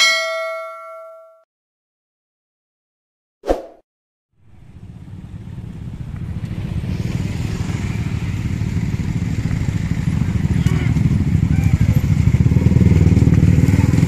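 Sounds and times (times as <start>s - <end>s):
traffic noise: 4.4s - 14.0s
motorcycle engine passing: 4.5s - 14.0s.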